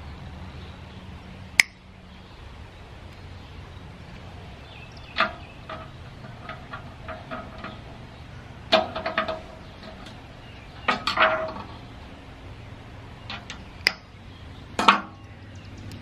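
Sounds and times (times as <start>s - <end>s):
metal tools clinking on metal casing: 5.0s - 11.9s.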